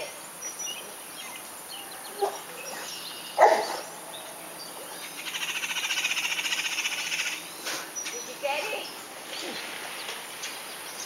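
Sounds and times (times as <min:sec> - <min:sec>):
dog yelping: 0:02.2 - 0:03.9.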